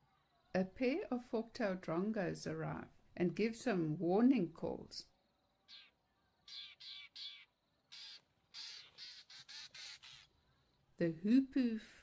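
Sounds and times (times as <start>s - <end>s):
birds giving harsh warning calls: 5.6s - 10.4s.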